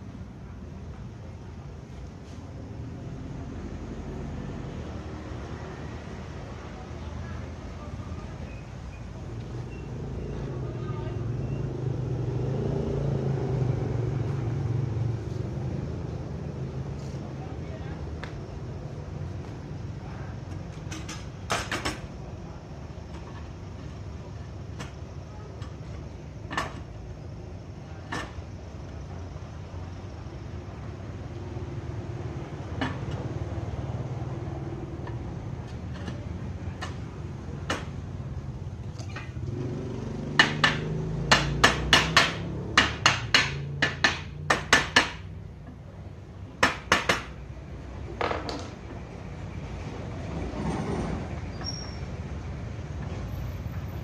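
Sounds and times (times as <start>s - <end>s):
hammer tapping on wood: 40.4s - 45.2s.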